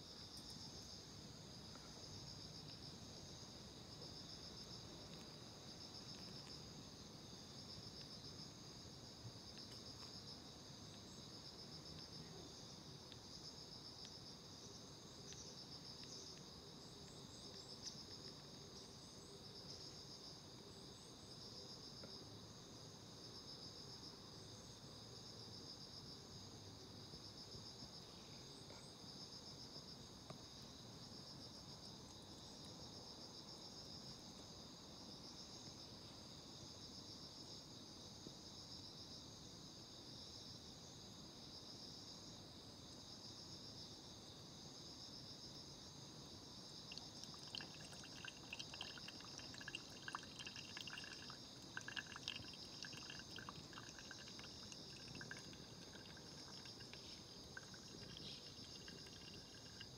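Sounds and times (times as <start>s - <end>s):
crickets trilling: 0.0s - 59.9s
faint chirps: 46.9s - 59.9s.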